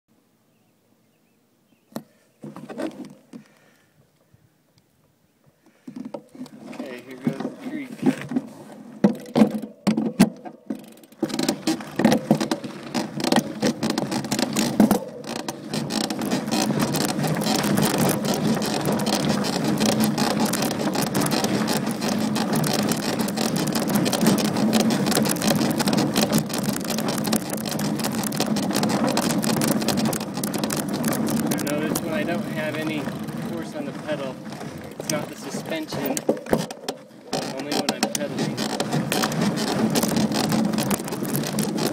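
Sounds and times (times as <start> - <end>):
tyres on loose dirt: 1.8 - 4.4, 5.0 - 41.9
bike creaking clicks: 9.0 - 41.9
small rattling clicks: 9.1 - 41.9.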